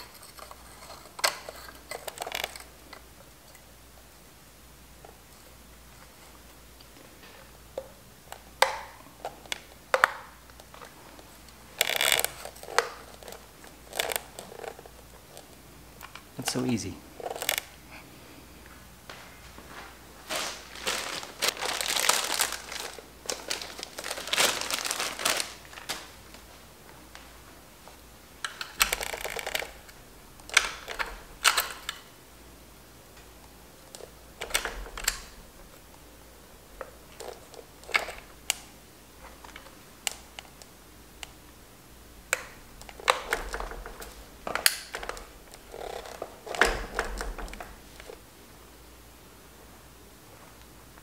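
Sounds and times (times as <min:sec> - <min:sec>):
rubber crinkling and rustling: 0:00.0 - 0:03.7, 0:05.0 - 0:17.8, 0:18.7 - 0:32.1, 0:36.8 - 0:40.6, 0:42.3 - 0:48.2.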